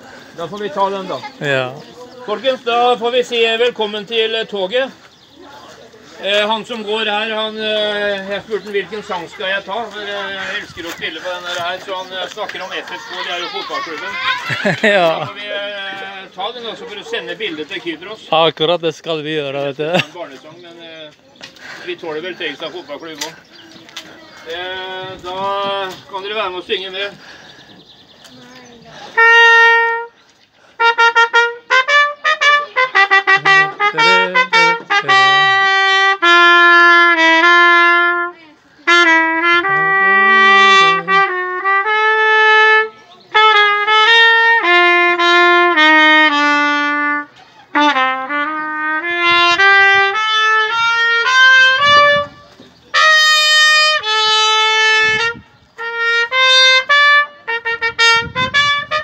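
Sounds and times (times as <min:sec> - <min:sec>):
solo trumpet melody: 0:29.1 - 0:30.2, 0:30.8 - 0:59.0.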